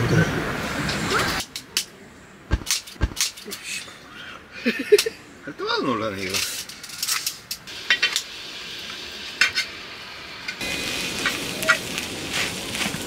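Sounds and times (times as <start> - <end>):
steady sizzle: 6.2 - 13.0.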